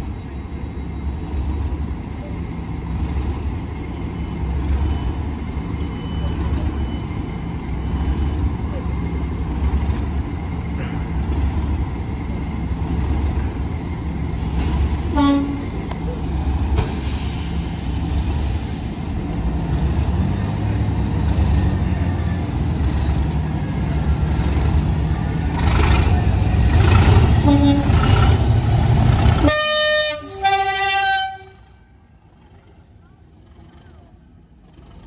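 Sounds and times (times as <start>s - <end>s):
diesel locomotive idling: 0.0s - 35.0s
locomotive horn toot: 15.0s - 15.9s, 27.3s - 28.4s, 29.4s - 32.0s.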